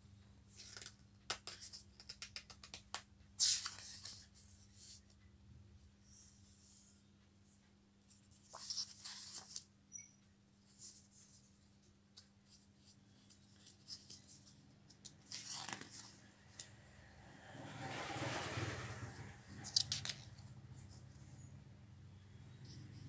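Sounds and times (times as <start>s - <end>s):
book pages turning: 0.5s - 5.1s, 8.2s - 9.7s, 12.1s - 16.8s, 18.1s - 21.1s
paper handling clicks: 19.6s - 20.4s.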